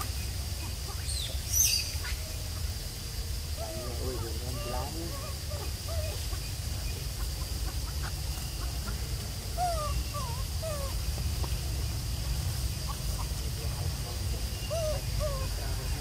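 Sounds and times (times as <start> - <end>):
short animal calls: 3.6 - 6.2.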